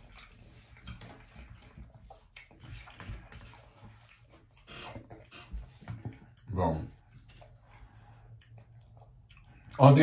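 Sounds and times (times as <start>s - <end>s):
wet chewing mouth noises: 0.0s - 9.8s.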